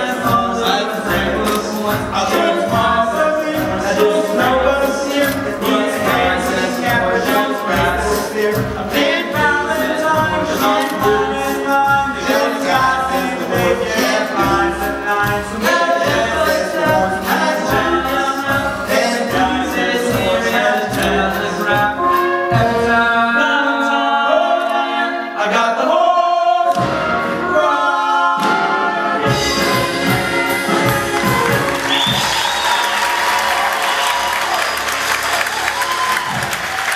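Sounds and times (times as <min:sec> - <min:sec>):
instrumental accompaniment with beat: 0:00.0 - 0:23.2, 0:28.4 - 0:36.9
men singing a show tune: 0:00.0 - 0:30.3
audience applause: 0:30.6 - 0:36.9.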